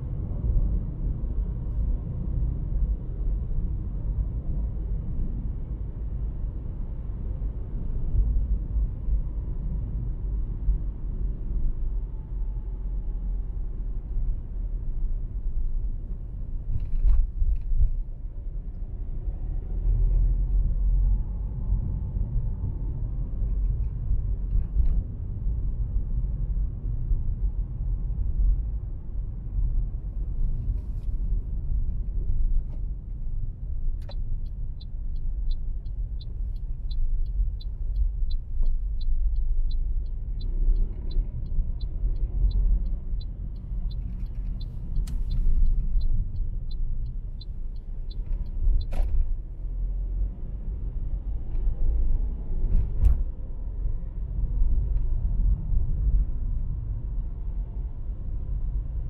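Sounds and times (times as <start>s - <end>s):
car road and engine rumble: 0.0s - 59.0s
turn signal ticking: 30.8s - 51.8s.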